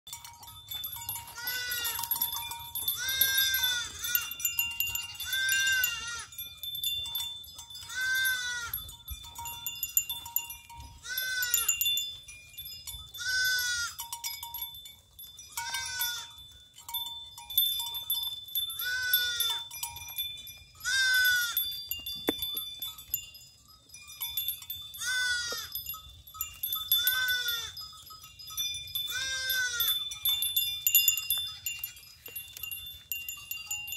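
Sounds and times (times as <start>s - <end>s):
faint steady ringing tones: 0.1s - 33.9s
goats bleating: 1.2s - 2.3s, 2.9s - 4.5s, 5.1s - 6.4s, 7.8s - 8.9s, 11.0s - 11.8s, 13.2s - 14.0s, 15.6s - 16.4s, 18.8s - 19.6s, 20.8s - 21.6s, 25.0s - 25.7s, 26.9s - 27.8s, 29.1s - 30.0s.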